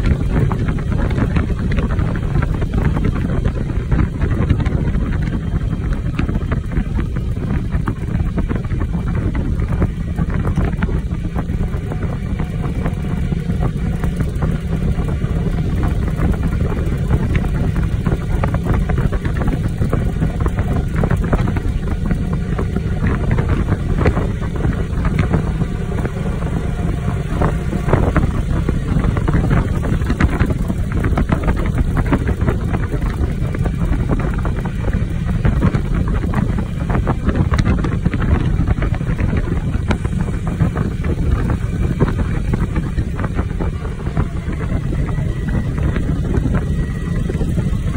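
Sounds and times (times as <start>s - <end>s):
vehicle engine and road noise: 0.0s - 47.9s
wind buffeting microphone: 0.0s - 47.9s.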